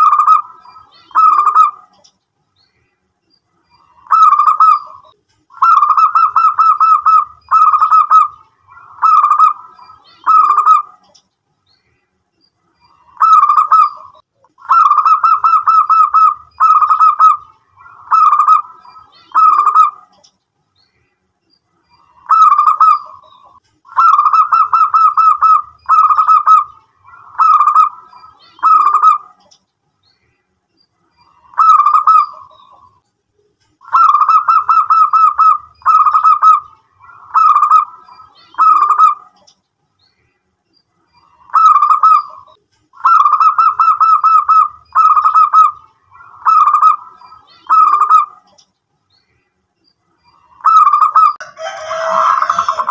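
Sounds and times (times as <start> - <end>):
zebra dove cooing: 0.0 - 2.0, 3.8 - 11.2, 13.0 - 20.2, 22.1 - 29.5, 31.3 - 32.9, 33.8 - 39.5, 41.3 - 48.6, 50.5 - 52.9.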